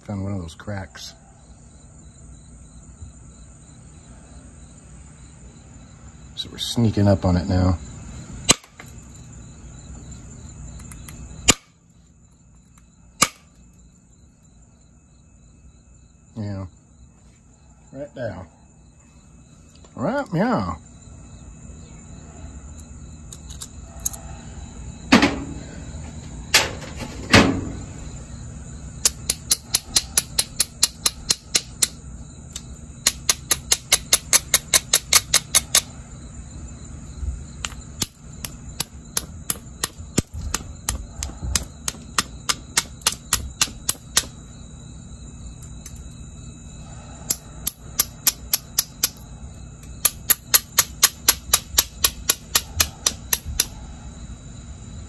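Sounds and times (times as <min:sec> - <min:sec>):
rapid clicking of tool on stone: 0:29.0 - 0:32.0, 0:32.6 - 0:35.9, 0:37.6 - 0:44.3, 0:47.3 - 0:49.2, 0:50.0 - 0:53.7.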